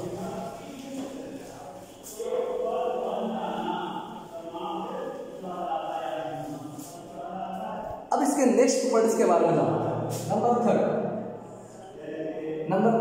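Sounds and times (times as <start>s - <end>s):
voices singing held chant-like notes: 0.0s - 13.0s.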